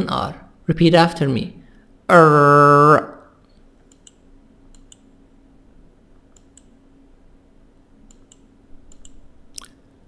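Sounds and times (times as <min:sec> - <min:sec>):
faint low hum: 0:00.0 - 0:10.0
computer mouse clicks: 0:03.5 - 0:05.1, 0:06.3 - 0:06.8, 0:08.0 - 0:09.8.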